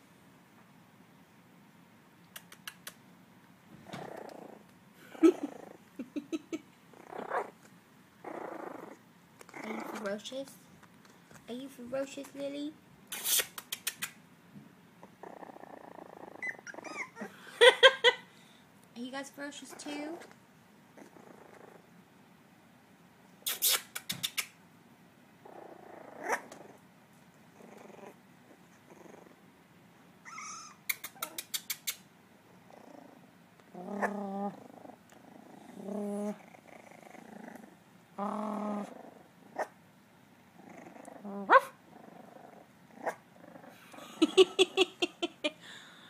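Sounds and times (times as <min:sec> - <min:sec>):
puppies growling: 0:03.8 - 0:10.3, 0:15.0 - 0:17.6, 0:19.6 - 0:22.0, 0:25.4 - 0:29.6, 0:30.2 - 0:31.4, 0:32.4 - 0:39.8, 0:40.4 - 0:45.0
puppies yapping: 0:16.4 - 0:17.3, 0:30.2 - 0:30.8.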